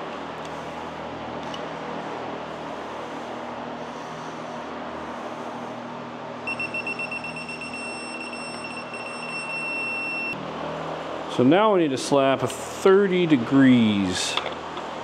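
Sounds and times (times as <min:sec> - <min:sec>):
torque wrench beeping: 0:06.5 - 0:10.4.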